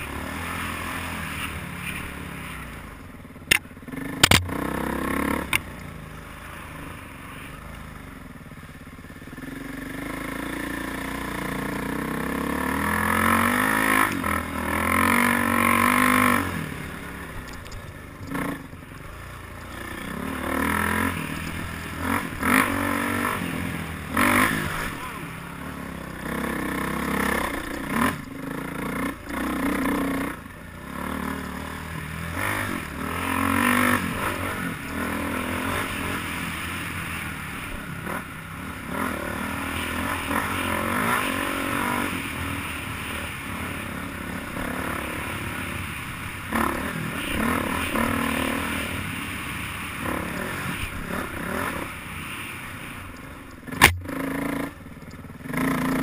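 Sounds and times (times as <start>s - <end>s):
dirt bike engine revving: 0.0s - 2.6s, 3.5s - 6.8s, 9.3s - 17.3s, 19.6s - 52.2s, 53.6s - 56.0s
sharp knocks: 4.2s - 4.6s.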